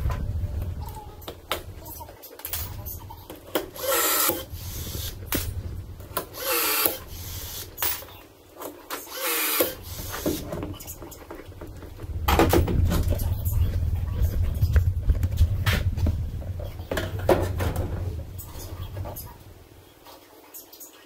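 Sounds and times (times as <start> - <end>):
low hum: 0.0 - 8.4, 9.6 - 19.9
cordless drill bursts: 3.7 - 5.2, 6.2 - 8.0, 9.1 - 10.9.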